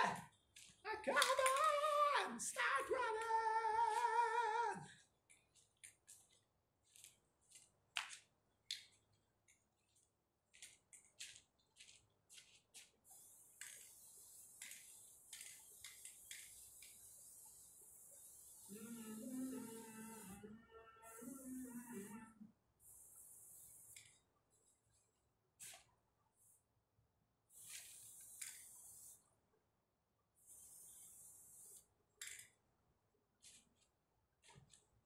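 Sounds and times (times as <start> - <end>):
person singing or humming: 0.9 - 4.9, 18.7 - 22.5.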